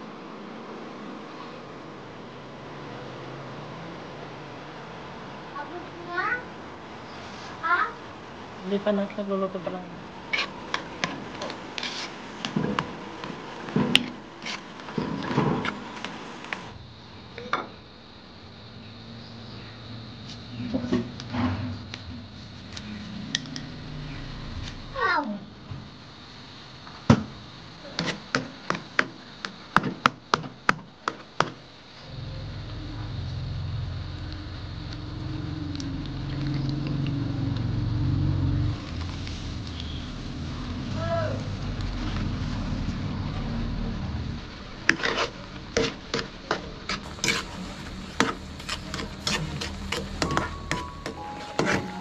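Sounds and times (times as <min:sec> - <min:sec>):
steady low rumble: 0:18.5 - 0:26.3, 0:32.0 - 0:51.2
metal spoon scraping a metal pan: 0:46.9 - 0:52.0.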